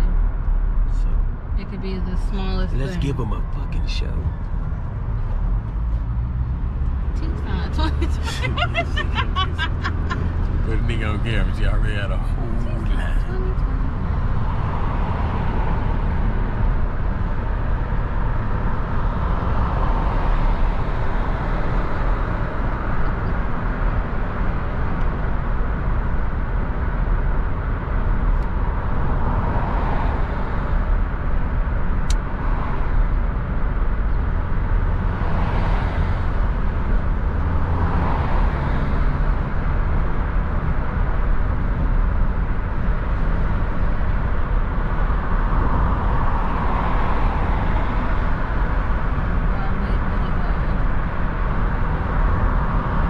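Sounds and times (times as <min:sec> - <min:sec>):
car road and engine rumble: 0:00.0 - 0:53.0.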